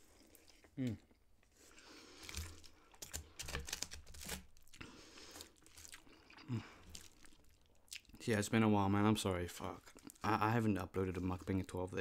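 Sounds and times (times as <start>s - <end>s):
person eating noodles: 4.7s - 8.1s.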